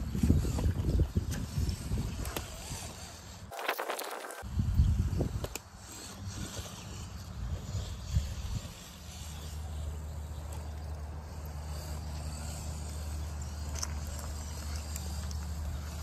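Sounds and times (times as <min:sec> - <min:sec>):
rc truck motor humming: 0:00.0 - 0:16.0.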